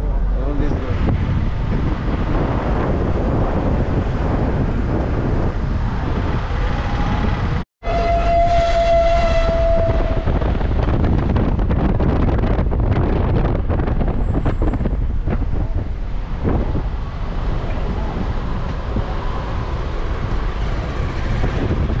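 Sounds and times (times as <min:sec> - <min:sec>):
road vehicle rumble: 0:00.0 - 0:22.0
vehicle horn held note: 0:07.8 - 0:10.1.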